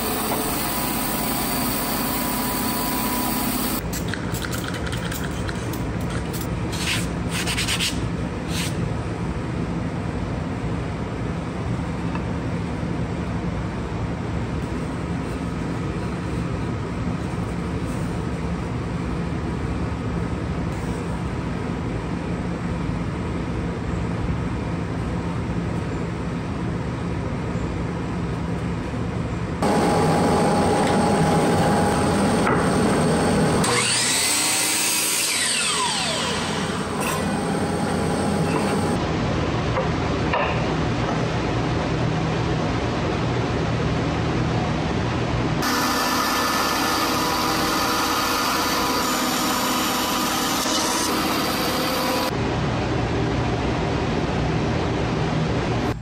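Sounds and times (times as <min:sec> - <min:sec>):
bandsaw cutting wood: 0:29.6 - 0:39.0, 0:45.6 - 0:52.3.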